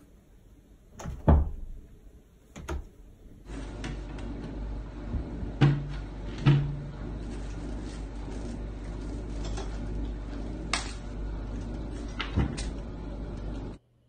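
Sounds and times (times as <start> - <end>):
low steady hum: 0.0 - 14.0
cabinet door knocking shut: 1.0 - 1.7.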